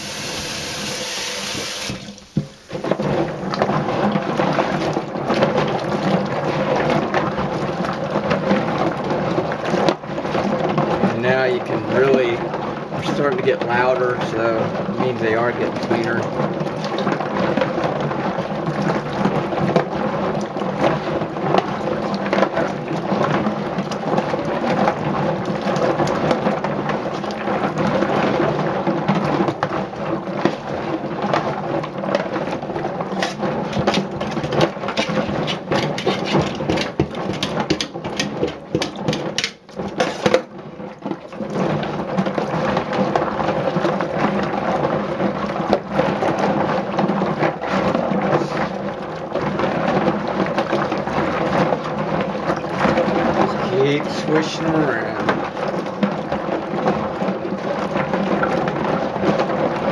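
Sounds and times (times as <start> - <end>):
brush scrubbing in water: 32.4 - 39.2
nuts clattering in a metal sink: 49.8 - 55.5.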